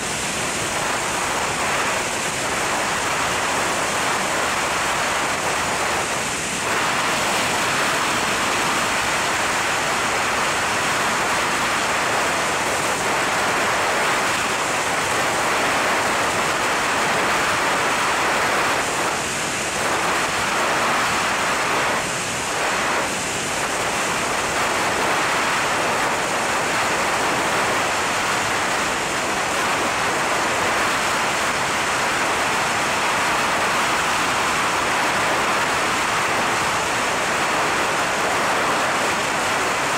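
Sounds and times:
freefall wind rushing over microphone: 0:00.0 - 0:39.9.

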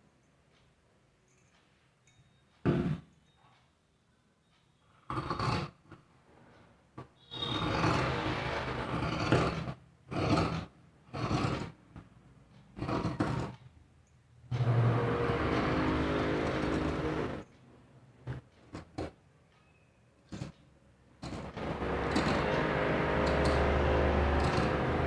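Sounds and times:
scissors cutting fabric: 0:05.1 - 0:05.8, 0:07.4 - 0:11.8, 0:12.8 - 0:13.6, 0:21.2 - 0:25.0.

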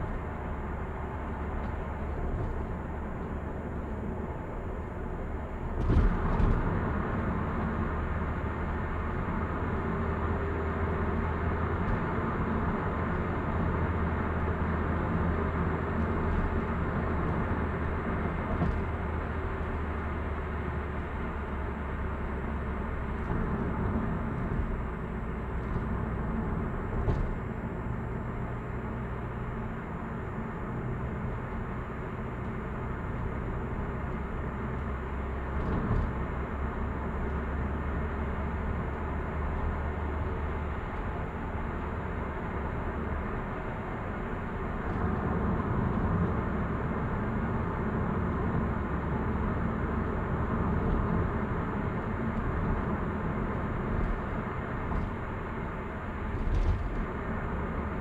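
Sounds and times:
low engine hum: 0:00.0 - 0:58.0.

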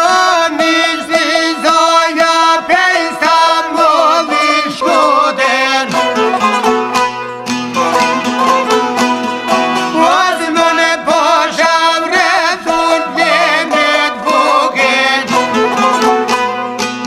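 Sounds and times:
plucked strings strumming: 0:00.0 - 0:17.0
lead melody with vibrato: 0:04.0 - 0:10.7, 0:12.6 - 0:17.0.

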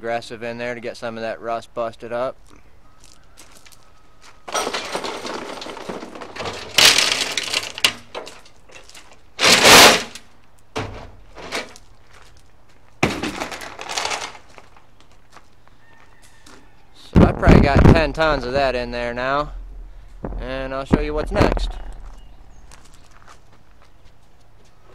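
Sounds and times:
gravel rattling in steel tank: 0:04.5 - 0:11.9.

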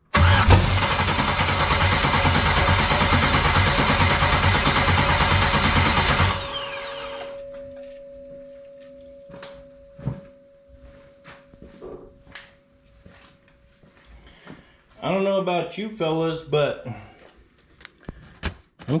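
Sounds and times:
engine cranking on starter: 0:00.1 - 0:07.4
starter falling whine: 0:00.1 - 0:07.4
faint steady hum: 0:06.7 - 0:15.0.

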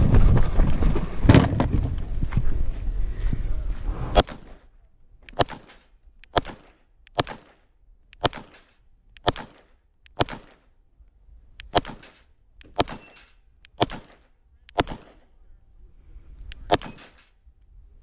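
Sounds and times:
pistol shots hitting steel: 0:05.3 - 0:10.7, 0:11.7 - 0:15.3, 0:16.6 - 0:17.4.

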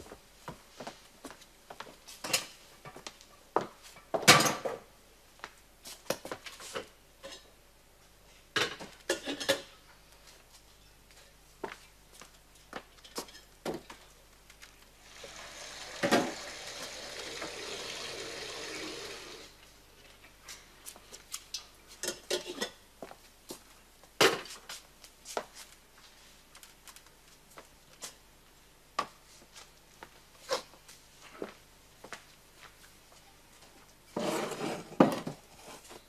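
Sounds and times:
water running from a tap: 0:15.0 - 0:19.5.

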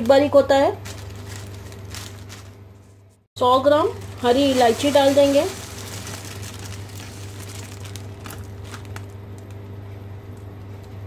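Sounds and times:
steady low hum: 0:00.2 - 0:11.0
plastic bag crinkling: 0:00.7 - 0:02.9, 0:03.6 - 0:09.7.

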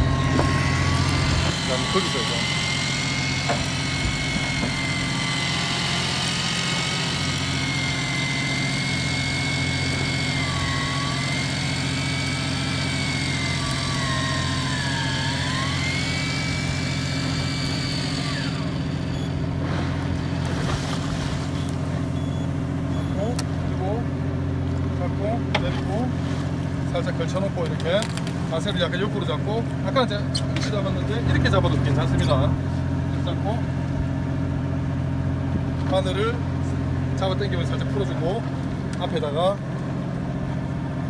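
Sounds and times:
electric fishing reel motor whining: 0:00.0 - 0:23.3
boat engine humming: 0:00.0 - 0:41.0.

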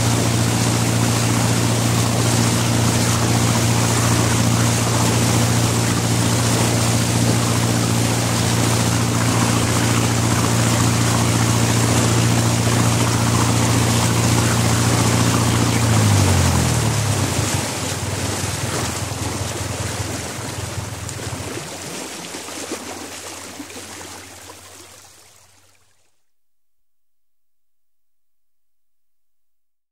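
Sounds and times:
boat diesel engine running: 0:00.0 - 0:22.4
stern wash rushing: 0:00.0 - 0:24.6.

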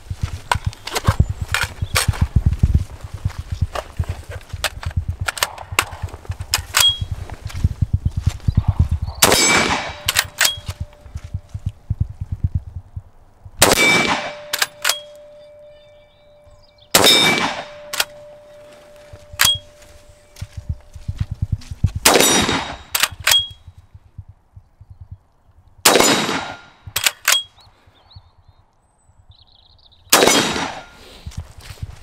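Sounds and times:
low handling thumps: 0:01.2 - 0:09.7, 0:10.8 - 0:13.6, 0:20.6 - 0:22.7
metallic clicks and pings: 0:06.6 - 0:07.1, 0:09.8 - 0:11.1, 0:13.9 - 0:16.1, 0:17.1 - 0:20.4, 0:22.4 - 0:23.6, 0:27.0 - 0:27.6
rifle shots with echo: 0:08.6 - 0:11.0, 0:13.6 - 0:15.7, 0:16.9 - 0:19.8, 0:22.0 - 0:23.5, 0:25.8 - 0:27.4, 0:30.1 - 0:31.0
steady ringing: 0:13.8 - 0:21.2.

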